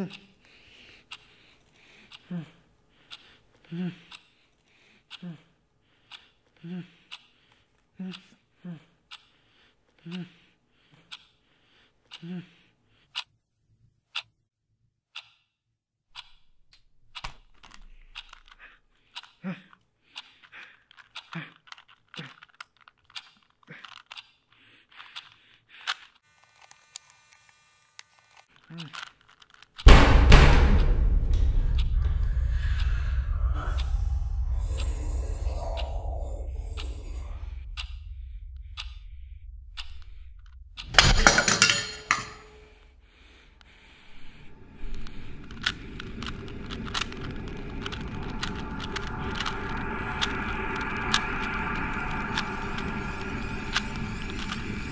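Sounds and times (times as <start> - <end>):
puzzle cube clicking as turned: 17.2 - 26.2, 28.4 - 29.9, 44.8 - 54.8
drone: 29.9 - 41.6, 42.6 - 54.9
sudden loud hit: 29.9 - 41.6
low rumble: 29.9 - 54.9
ticking: 30.7 - 41.1, 42.7 - 54.9.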